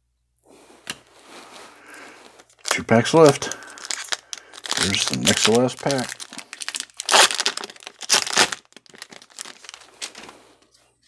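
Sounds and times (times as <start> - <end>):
foil wrapper crinkling: 1.8 - 10.7.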